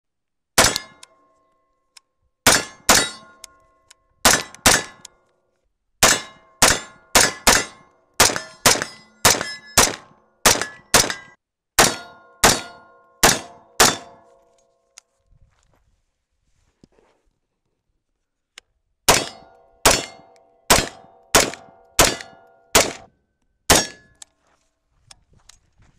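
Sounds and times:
rifle shots: 0.6s - 1.0s, 2.4s - 3.3s, 4.2s - 5.0s, 6.0s - 14.2s, 19.1s - 23.1s, 23.7s - 24.0s
metallic ringing of steel targets: 0.6s - 1.6s, 2.5s - 5.1s, 6.0s - 14.5s, 19.1s - 24.2s.

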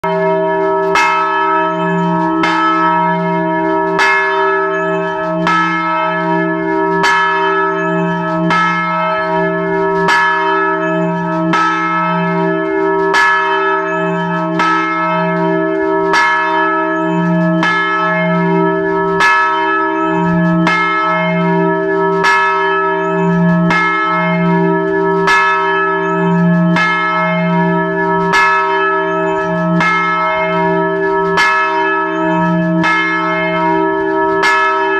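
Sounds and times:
church bell ringing: 0.0s - 34.9s.

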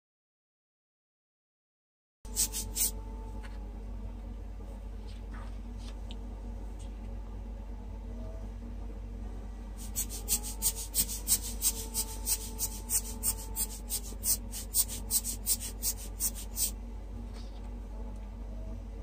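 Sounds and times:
tool hissing strokes on paper: 2.3s - 3.0s, 9.8s - 16.8s.

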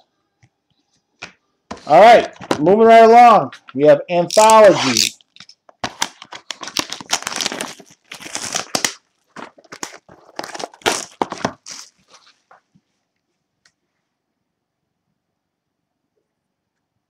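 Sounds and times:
plastic wrapping crinkling and tearing: 4.3s - 12.7s.

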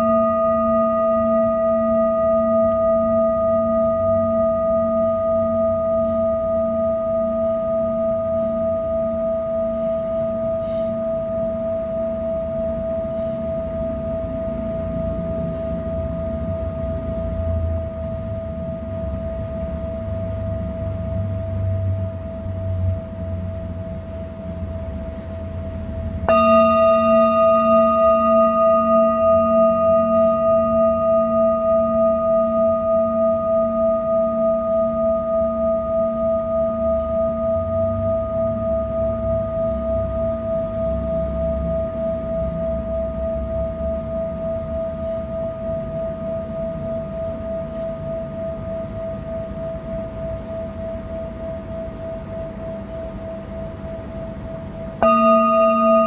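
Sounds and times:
singing bowl ringing: 0.0s - 56.0s
singing bowl struck: 0.0s - 56.0s
mallet rubbing bowl rim: 26.2s - 49.2s, 54.9s - 56.0s.

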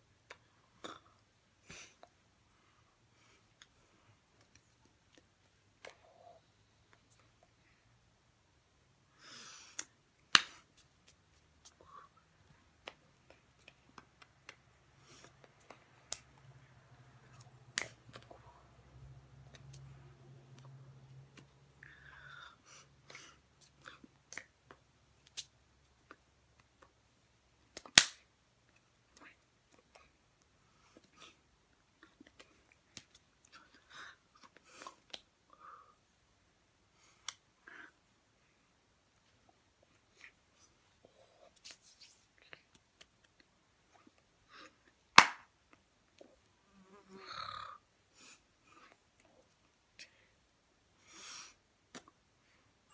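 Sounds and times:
faint low hum: 0.0s - 52.9s
hands slapping together: 9.7s - 11.9s, 17.3s - 18.3s, 27.7s - 28.3s, 32.3s - 33.2s, 45.2s - 45.5s.

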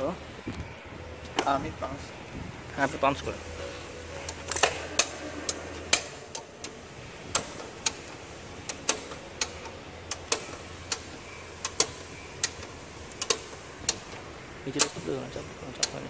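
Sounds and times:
low steady hum: 0.0s - 16.0s
hand tools clicking on metal: 4.2s - 16.0s.

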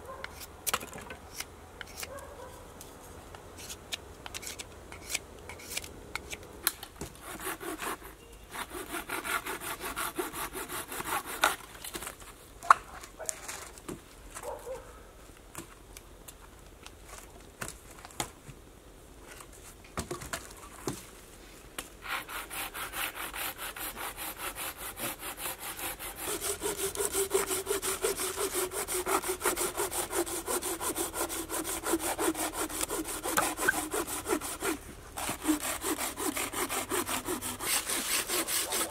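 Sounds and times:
hand saw cutting wood: 7.1s - 11.7s, 22.0s - 38.9s.

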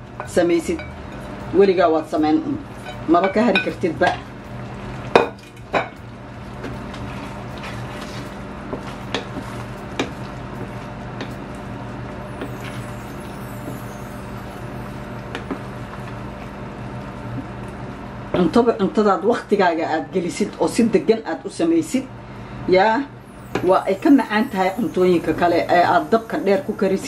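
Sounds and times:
wooden spoon stirring sauce: 6.5s - 11.0s.

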